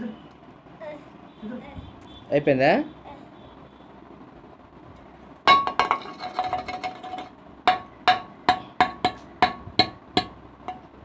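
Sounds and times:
sharp taps on bowl: 7.7s - 10.9s.

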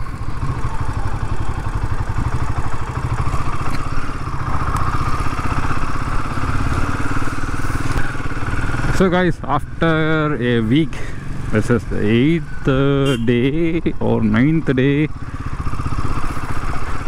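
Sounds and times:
motorcycle engine idling: 0.0s - 17.0s.

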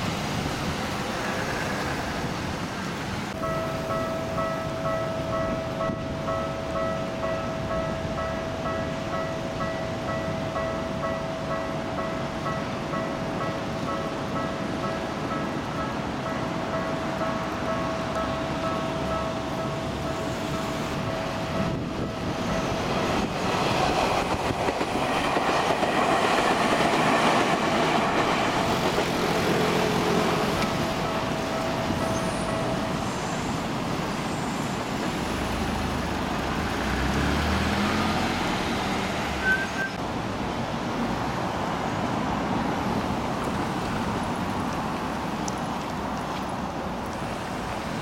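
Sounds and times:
street noise: 0.0s - 48.0s
train wheels rumbling on rails: 0.0s - 48.0s.

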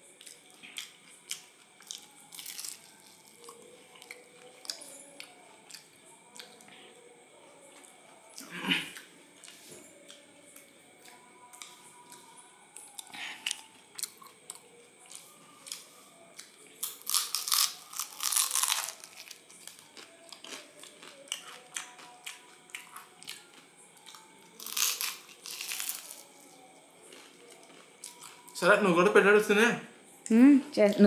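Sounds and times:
crunching bites and chewing: 0.2s - 4.8s, 12.9s - 26.4s, 27.1s - 28.5s.

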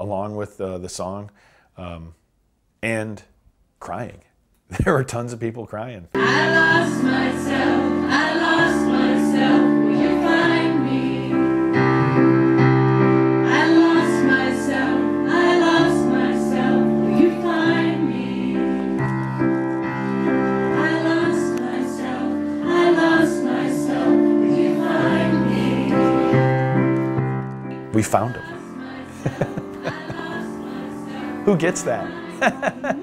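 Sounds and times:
woman singing: 6.2s - 11.4s, 13.5s - 18.7s, 28.5s - 31.4s
crowd singing along: 6.2s - 12.6s, 13.3s - 19.2s, 20.0s - 26.9s, 28.1s - 33.0s
electric keyboard: 6.2s - 33.0s.

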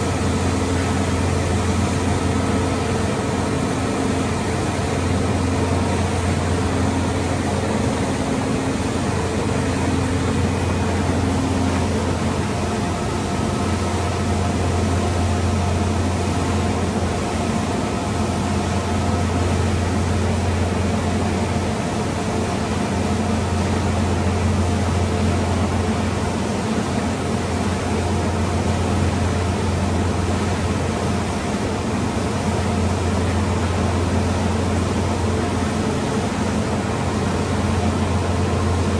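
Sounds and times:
ventilation hum and hiss: 0.0s - 38.9s.

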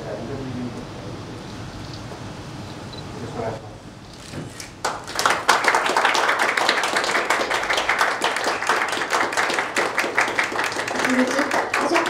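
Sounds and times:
audience applauding: 4.8s - 12.0s.

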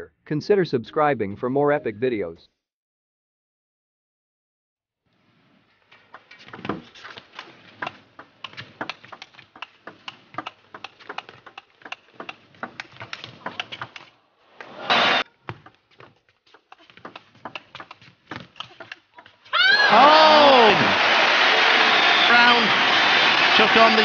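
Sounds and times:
table tennis ball clicking: 7.6s - 14.1s, 16.6s - 19.1s.

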